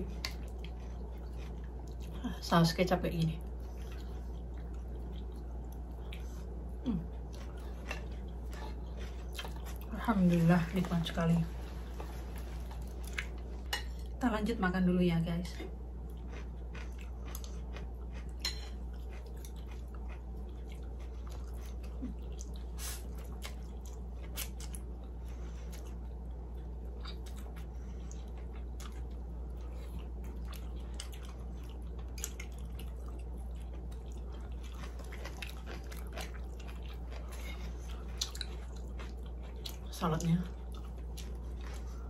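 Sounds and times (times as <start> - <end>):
steady low hum: 0.0 - 42.0
people chewing and slurping: 16.0 - 39.9.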